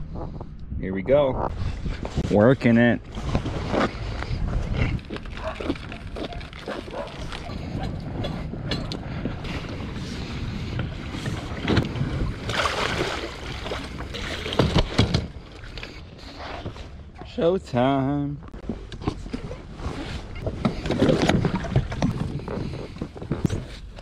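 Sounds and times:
boat cart rolling on concrete: 2.5 - 12.5
hull and gear knocking and rattling: 13.8 - 15.8, 20.4 - 24.0.

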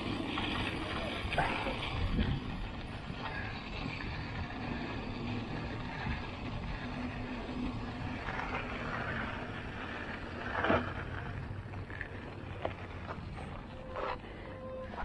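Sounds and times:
bike tyres crunching on gravel: 0.0 - 15.0
wind on microphone: 1.8 - 3.2.

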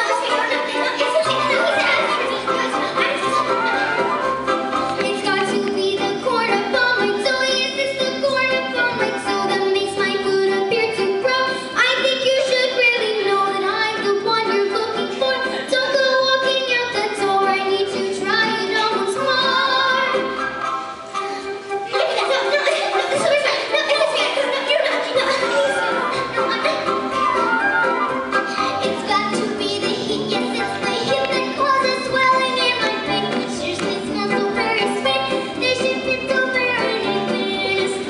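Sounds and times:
girl singing into microphone: 0.0 - 3.9, 4.9 - 20.4, 28.5 - 38.0
backing music: 0.0 - 38.0.

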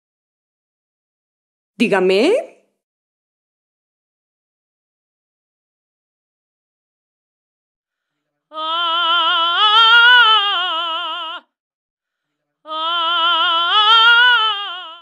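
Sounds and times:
woman singing with vibrato: 8.5 - 11.5, 12.7 - 15.0.

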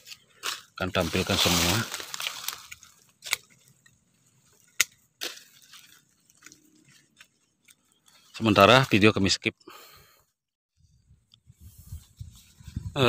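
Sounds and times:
leaves rustling: 0.0 - 9.1
pruning shears clicking: 1.5 - 3.9, 4.5 - 5.7.

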